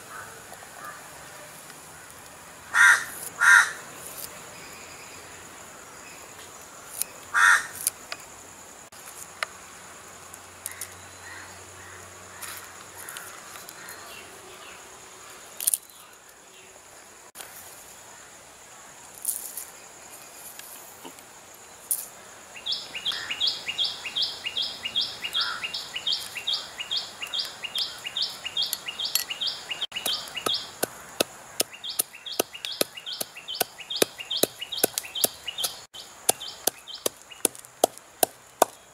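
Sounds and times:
bird chirping: 22.6 - 37.8
pestle pounding in wooden mortar: 29.9 - 38.8.

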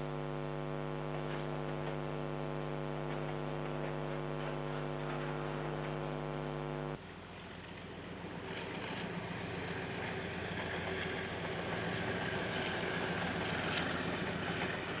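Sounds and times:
electrical mains hum: 0.0 - 7.2.

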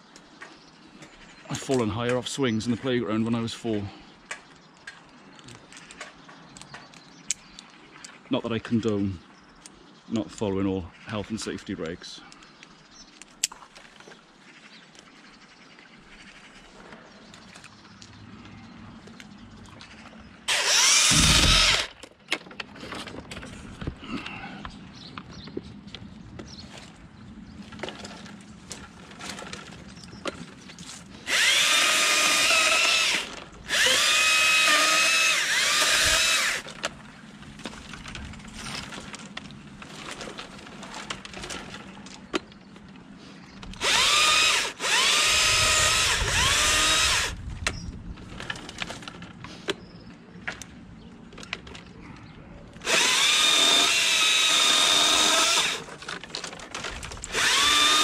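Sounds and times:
chainsaw revving and idling: 20.5 - 21.9, 31.2 - 36.7, 43.8 - 47.3, 52.8 - 55.9, 57.3 - 58.0
branches clicking: 50.4 - 58.0.

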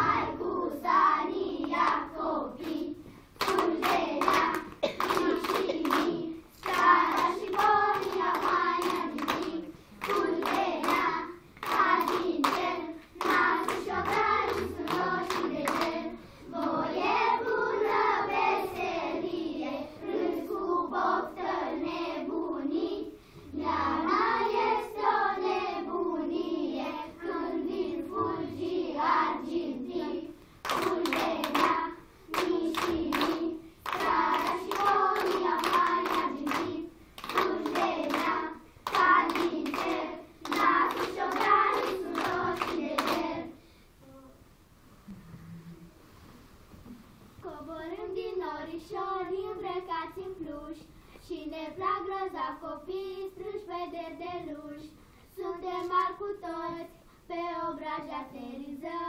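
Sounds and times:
children singing: 0.0 - 43.6
hands clapping: 1.6 - 2.0, 3.4 - 16.7, 30.6 - 43.3.

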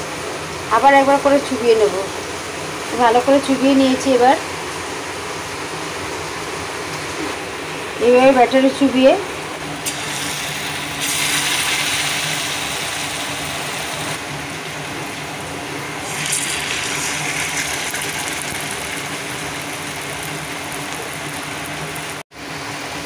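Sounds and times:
fritters sizzling in hot oil: 9.8 - 14.2, 15.9 - 22.2.

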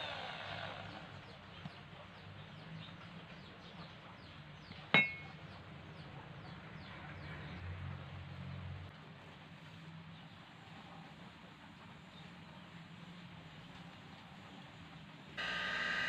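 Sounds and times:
metal clink on concrete: 4.9 - 5.4.

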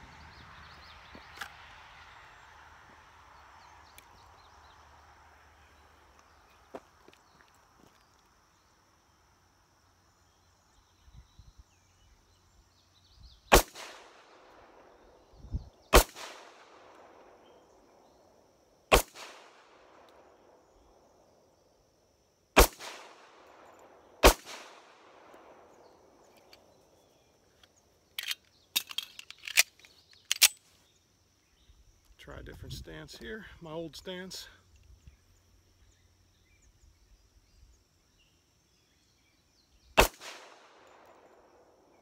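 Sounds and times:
pistol shots with echo: 13.5 - 14.5, 15.9 - 17.4, 18.9 - 20.0, 22.6 - 23.6, 24.2 - 25.6, 40.0 - 41.0.

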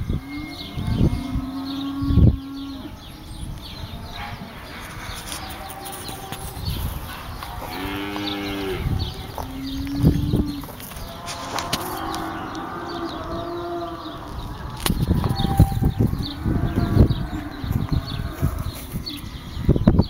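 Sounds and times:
cow mooing: 7.5 - 18.8.

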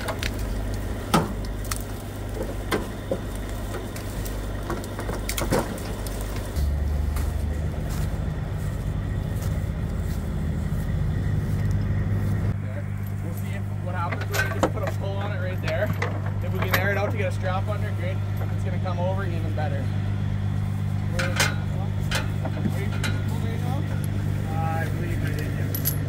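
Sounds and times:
twigs cracking: 0.0 - 12.0
diesel truck engine running: 0.0 - 26.0.

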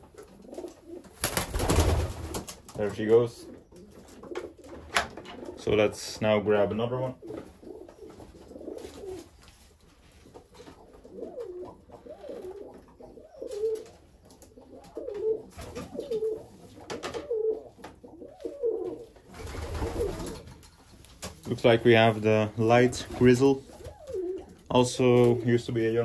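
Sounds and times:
pigeons cooing: 0.0 - 1.2, 3.3 - 5.8, 7.0 - 9.5, 10.1 - 20.7, 21.4 - 25.0.

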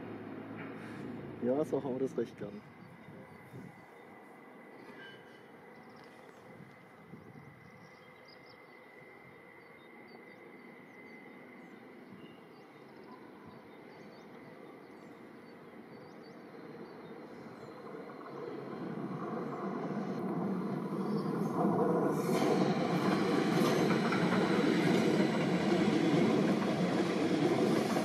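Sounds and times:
outdoor background noise: 0.0 - 28.0
birds chirping: 1.5 - 28.0
train rumble: 14.6 - 28.0.

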